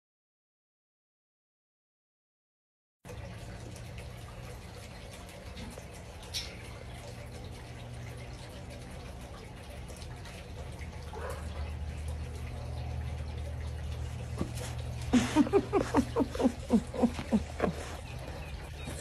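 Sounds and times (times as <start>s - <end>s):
dog yipping: 11.1s - 11.7s.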